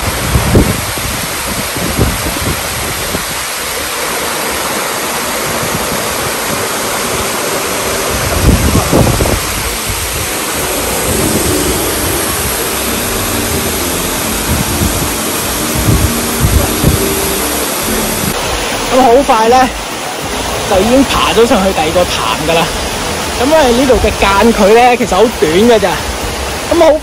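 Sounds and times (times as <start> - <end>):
waterfall rushing: 0.0 - 27.0
low microphone rumbles: 8.1 - 18.6.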